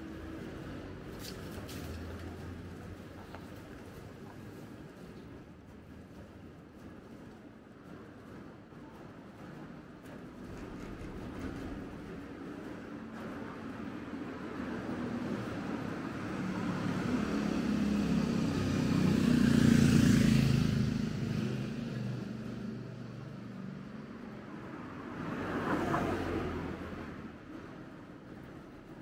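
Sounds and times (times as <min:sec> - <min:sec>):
lighter vehicle passing: 0:15.0 - 0:27.3
motor vehicle passing: 0:16.3 - 0:27.3.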